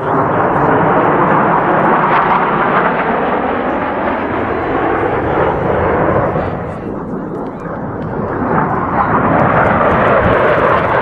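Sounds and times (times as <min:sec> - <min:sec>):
fighter jets flying overhead: 0:00.0 - 0:11.0.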